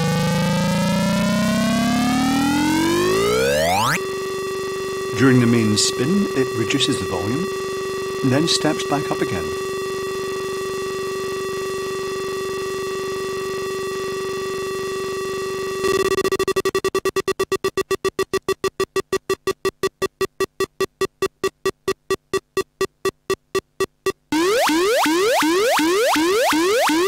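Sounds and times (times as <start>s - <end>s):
electronic game beeps slowing: 0.0s - 4.0s, 15.8s - 27.0s
buzzy electronic tone: 0.0s - 27.0s.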